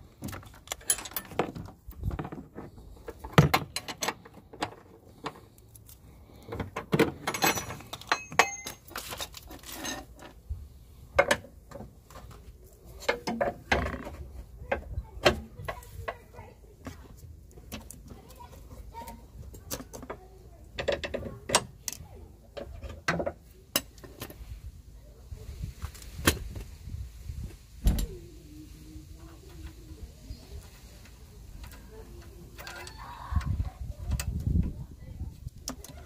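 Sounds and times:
metal tools clinking and knocking: 0.4 - 2.4, 3.1 - 5.4, 6.9 - 10.4.

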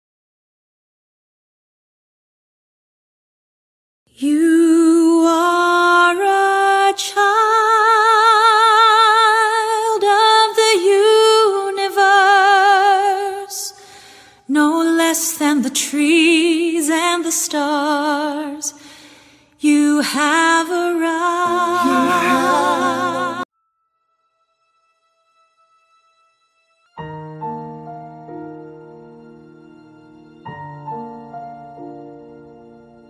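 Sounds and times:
woman singing solo: 19.6 - 23.5
backing instruments: 21.3 - 23.4.

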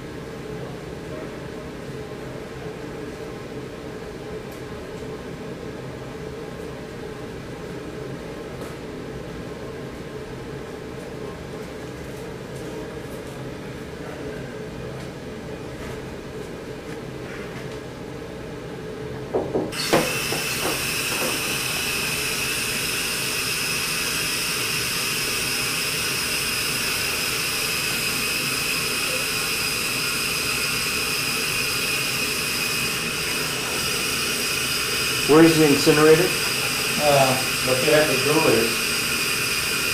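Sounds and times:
knocks: 19.3 - 21.4
gas hissing through a line: 19.7 - 39.9.

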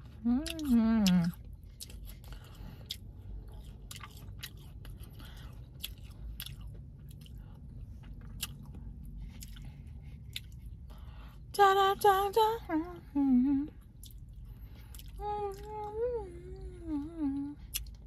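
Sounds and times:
chewing crisp fruit: 0.0 - 18.0
steady low hum: 0.0 - 18.0.

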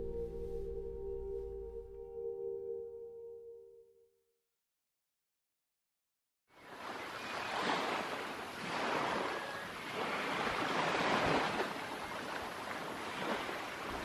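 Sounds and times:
wind: 6.5 - 14.0
surf washing onto a beach: 6.6 - 14.0.

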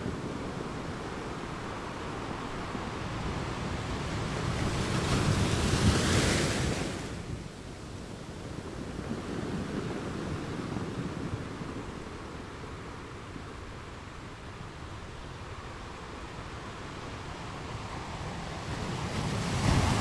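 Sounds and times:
ocean waves washing: 8.8 - 20.0.

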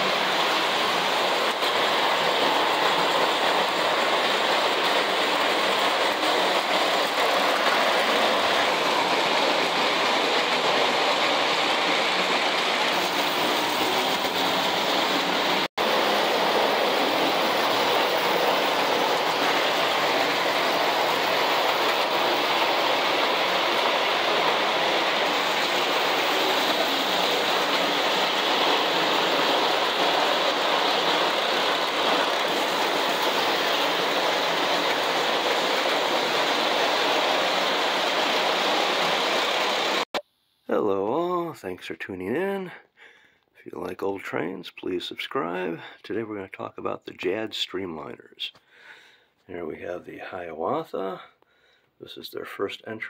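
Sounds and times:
toy trains rumbling on track: 0.0 - 40.0.

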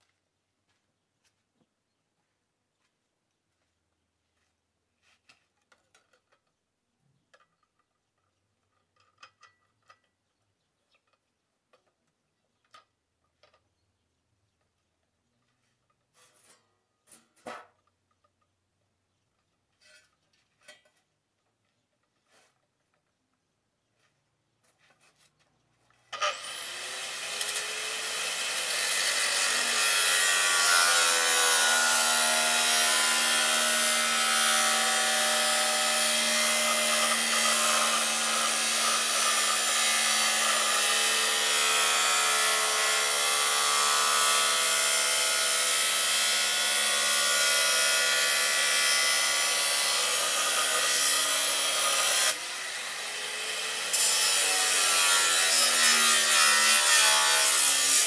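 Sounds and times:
angle grinder cutting metal: 26.1 - 58.0.

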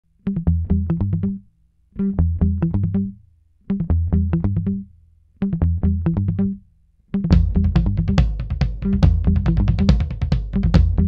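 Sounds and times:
bass-heavy music riff: 2.0 - 3.2, 3.8 - 4.9, 7.3 - 11.0.

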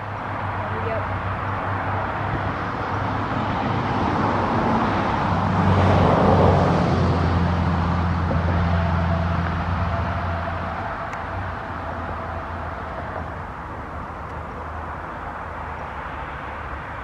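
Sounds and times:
low engine hum: 0.0 - 17.0
vehicle passing: 0.0 - 17.0.

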